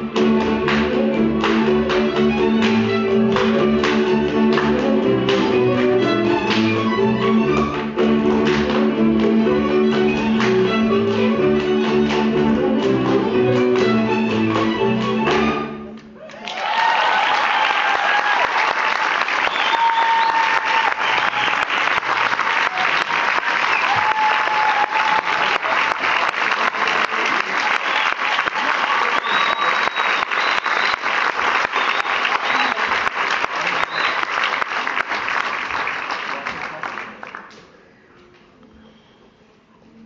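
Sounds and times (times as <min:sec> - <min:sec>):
audience applause: 0:00.0 - 0:15.3, 0:16.2 - 0:37.6
folk string band playing: 0:00.0 - 0:16.2.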